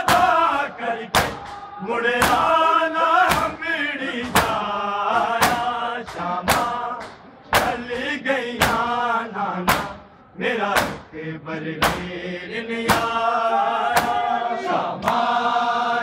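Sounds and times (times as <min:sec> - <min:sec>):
men chanting: 0:00.0 - 0:16.0
hand slaps on bare chests: 0:01.1 - 0:01.6, 0:03.3 - 0:03.6, 0:05.4 - 0:08.9, 0:09.7 - 0:10.0, 0:10.8 - 0:11.1, 0:11.8 - 0:12.1, 0:12.9 - 0:13.2, 0:14.0 - 0:14.2.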